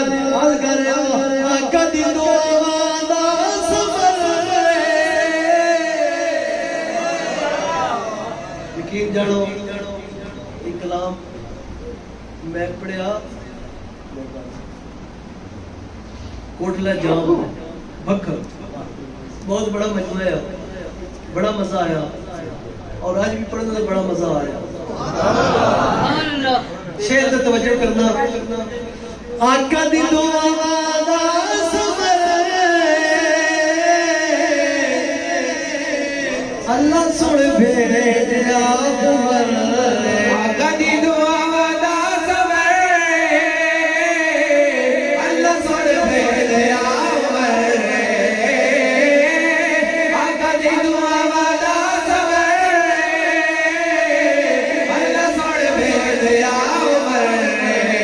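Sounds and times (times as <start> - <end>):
man singing unaccompanied: 0.0 - 10.5, 27.0 - 58.0.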